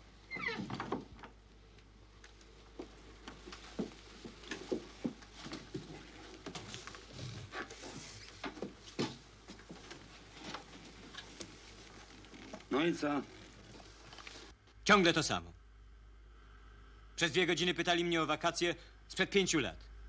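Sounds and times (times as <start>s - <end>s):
people moving about knocking: 2.8s - 12.8s.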